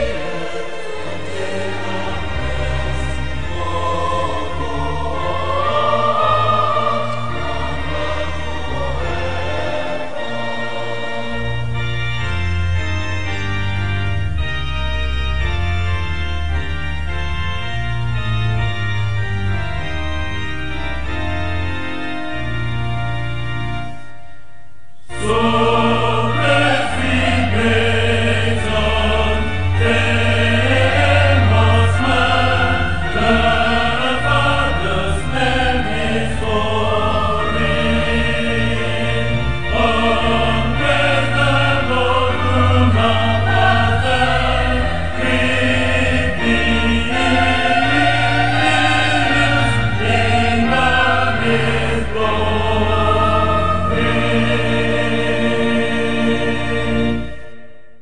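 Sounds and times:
choral church music: 0.0s - 58.0s.

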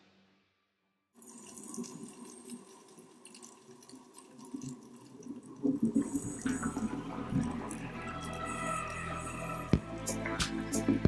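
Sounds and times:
underwater bubbling and crackling: 1.2s - 9.8s.

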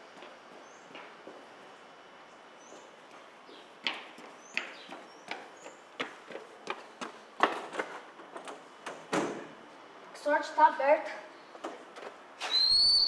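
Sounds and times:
running footsteps on concrete: 0.0s - 8.8s, 11.5s - 12.4s.

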